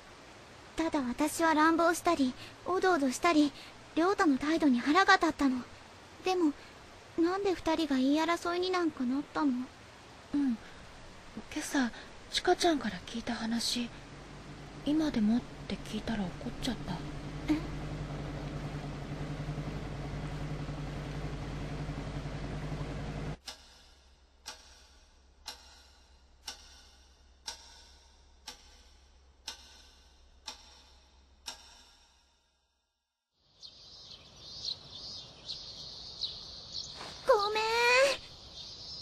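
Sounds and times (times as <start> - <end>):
steady low hum: 9.6 - 31.7
birds chirping: 13.2 - 23.4, 33.5 - 39.0
clock ticking: 23.4 - 32.2.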